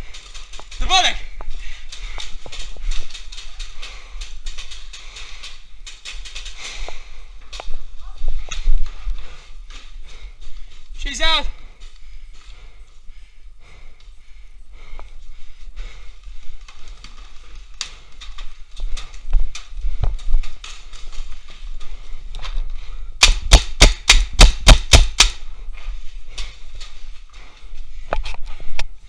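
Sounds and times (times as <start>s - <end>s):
paintball marker rapid shots: 23.2s - 25.4s.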